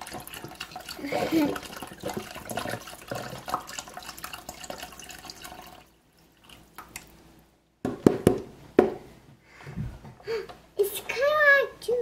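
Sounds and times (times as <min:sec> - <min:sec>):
liquid pouring into a pot: 0:00.0 - 0:07.2.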